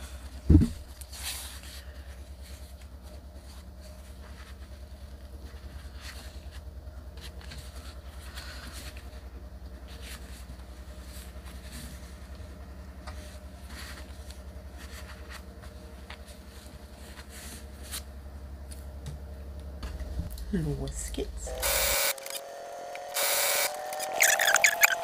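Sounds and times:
steady low hum: 0.0s - 25.0s
cloth rustling and pins scratching: 0.6s - 18.1s.

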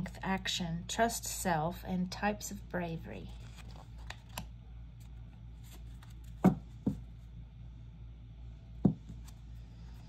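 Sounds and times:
steady low hum: 0.0s - 10.0s
cards being handled: 3.3s - 7.0s
taps and knocks on a surface: 8.8s - 9.2s.

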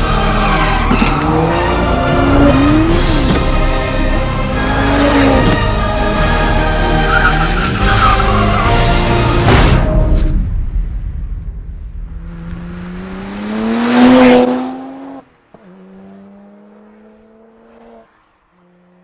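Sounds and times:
car engine revving: 0.0s - 9.3s, 12.0s - 19.0s.

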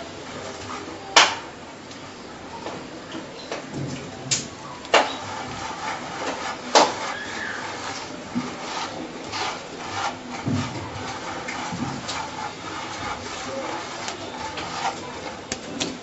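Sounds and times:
hands rubbing gritty grains: 4.9s - 15.8s.

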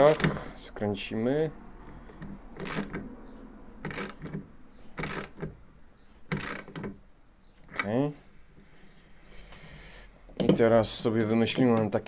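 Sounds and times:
socket ratchet clicking: 2.1s - 3.1s, 3.8s - 5.6s, 6.3s - 7.0s.

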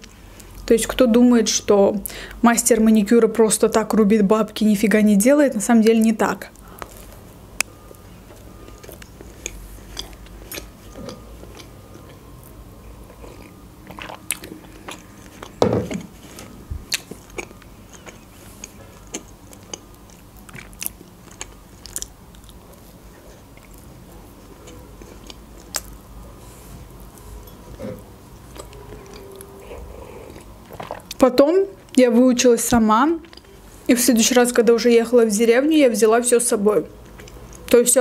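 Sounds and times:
person chewing cake: 6.5s - 31.2s, 33.2s - 33.6s, 37.0s - 37.7s.

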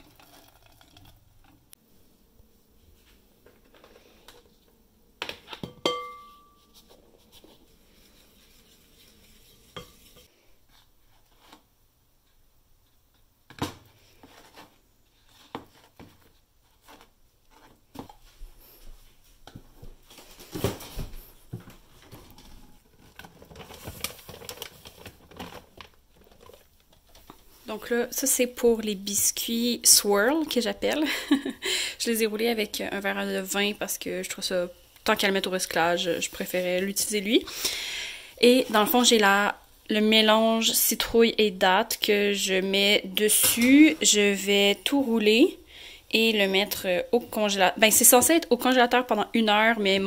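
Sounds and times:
bowls and utensils knocking and clinking: 5.4s - 6.8s
sharp ringing clink: 5.9s - 6.6s.

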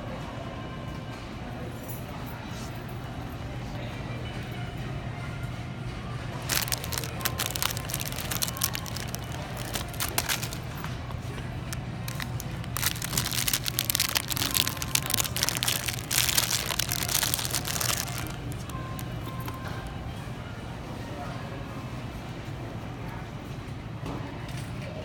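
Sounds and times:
cellophane bags crinkling: 6.4s - 10.9s, 11.6s - 19.8s.

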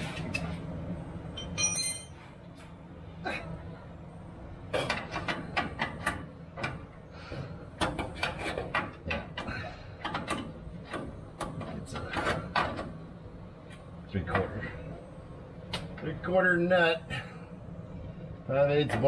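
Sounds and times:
steady low hum: 0.0s - 19.0s
wrench clinking on metal bolts: 1.4s - 2.2s.

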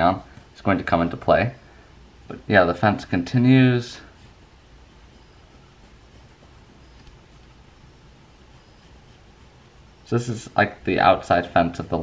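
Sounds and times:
pencil scratching on paper: 4.1s - 7.5s, 8.3s - 9.9s.

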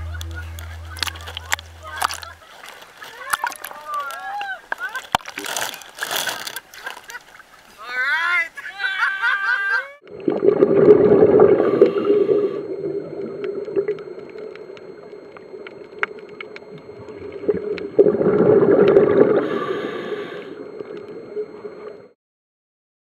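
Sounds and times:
steady underwater noise: 0.0s - 7.8s, 10.0s - 22.2s
underwater exhaust bubbles gurgling: 10.0s - 22.2s
faint clicks: 13.2s - 17.9s.

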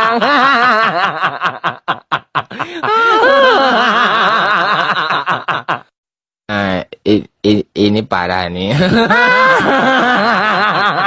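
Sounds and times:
person laughing: 0.0s - 5.9s, 8.7s - 11.0s.

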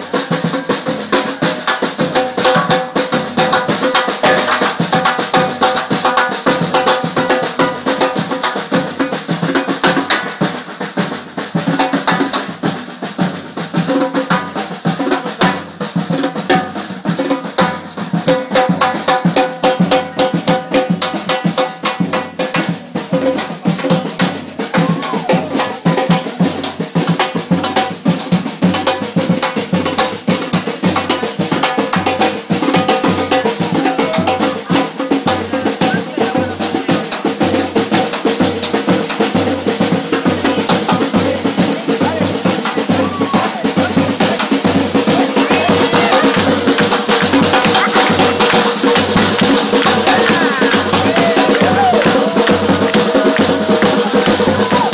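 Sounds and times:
samba percussion group drumming: 0.0s - 54.9s.

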